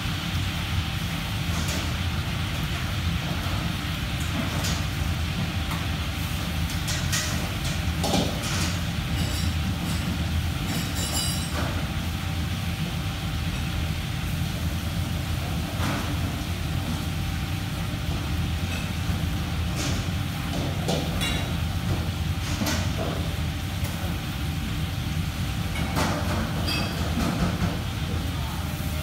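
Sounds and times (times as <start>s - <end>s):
dishes and utensils clinking: 8.2s - 11.8s, 25.7s - 27.6s.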